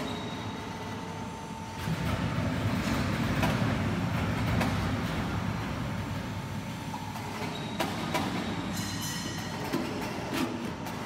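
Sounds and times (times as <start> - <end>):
factory machinery rumble: 0.0 - 11.0.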